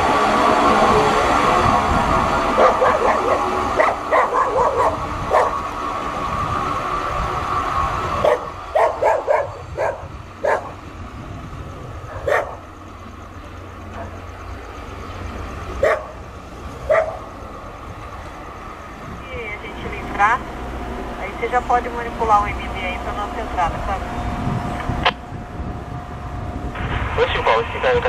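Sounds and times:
machine drone: 0.0 - 28.0
dog barking: 2.6 - 5.6, 8.2 - 10.8, 12.1 - 12.7, 15.8 - 16.2, 16.9 - 17.3.

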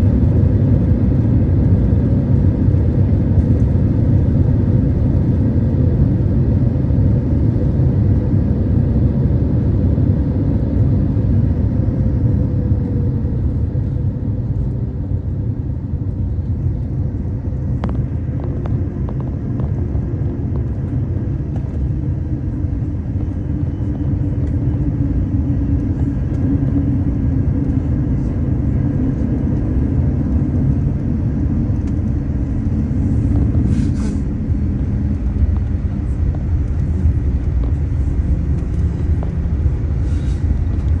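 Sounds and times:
airliner cabin low rumble: 0.0 - 41.0
jet engines at low thrust: 0.0 - 41.0
brief hiss: 33.7 - 34.3.

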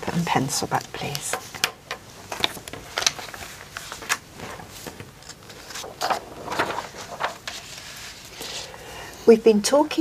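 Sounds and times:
paper rustling: 2.2 - 8.8.

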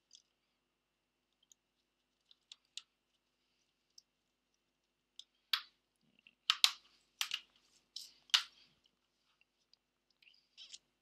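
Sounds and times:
clicks and taps of small tools: 6.5 - 8.5.

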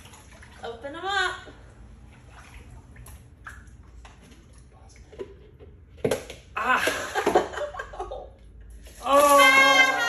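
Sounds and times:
excited shouting: 9.0 - 10.0.

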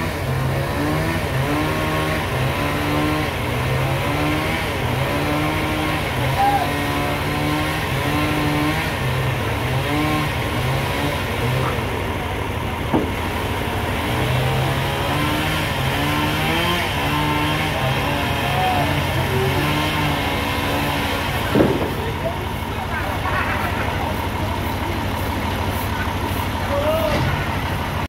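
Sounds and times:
forklift engine throbbing: 0.0 - 28.0
sharp knock: 12.9 - 13.2, 21.5 - 22.0.

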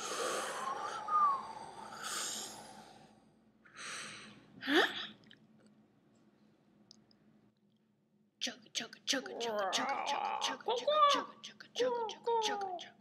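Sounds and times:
whistled tone: 0.6 - 1.7.

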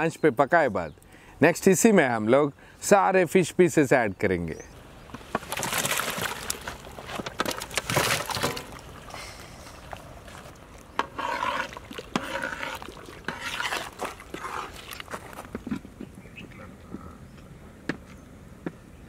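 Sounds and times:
fish splashing into a pot: 5.3 - 9.0.

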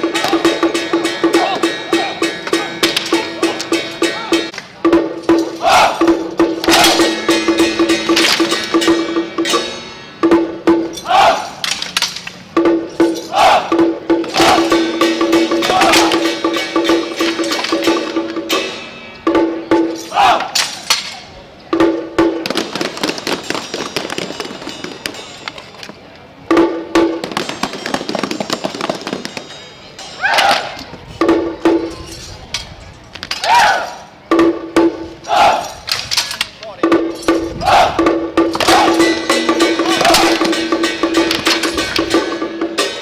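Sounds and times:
drums and percussion beating: 0.0 - 43.0
performers shouting in unison: 5.6 - 6.1, 11.0 - 11.6, 13.3 - 13.8, 14.4 - 14.8, 15.6 - 16.2, 20.1 - 20.6, 33.4 - 34.0, 35.2 - 35.8, 37.6 - 39.1.

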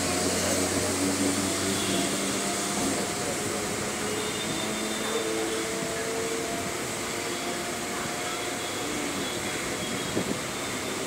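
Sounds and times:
electric train motor hum: 0.0 - 11.0.

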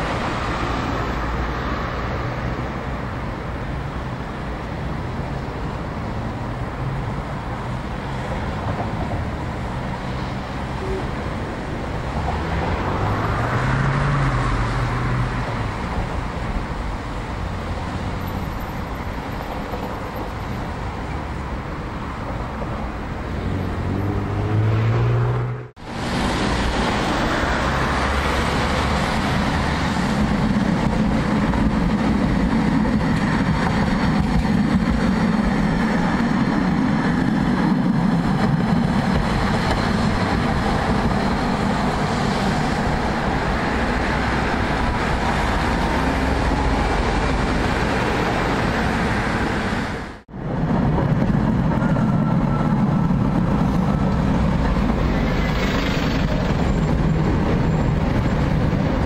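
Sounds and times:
low traffic rumble: 0.0 - 59.0
passing cars: 0.0 - 59.0
vehicle speeding up: 12.0 - 15.9, 23.3 - 30.6.

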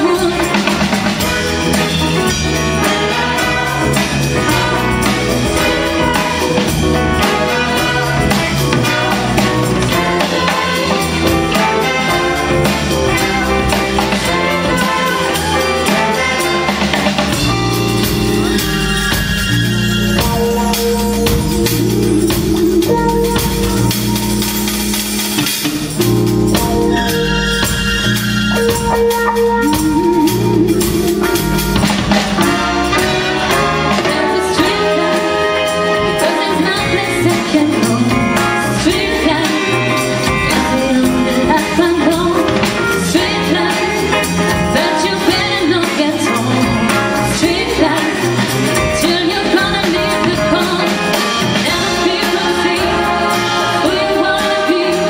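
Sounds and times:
live band music: 0.0 - 55.0
woman singing into a microphone: 36.2 - 55.0.

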